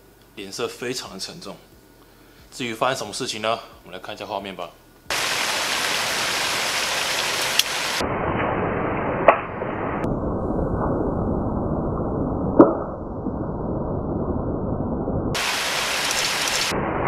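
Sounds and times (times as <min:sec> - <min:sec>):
steady rushing noise: 0:15.3 - 0:17.0.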